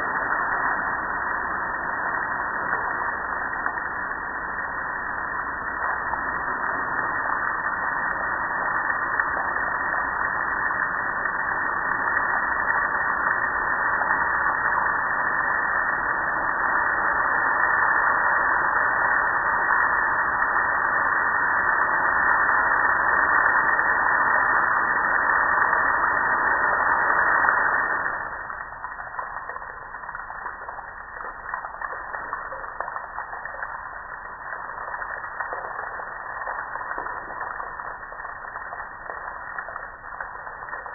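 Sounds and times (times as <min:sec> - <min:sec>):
water dripping: 0:00.0 - 0:40.9.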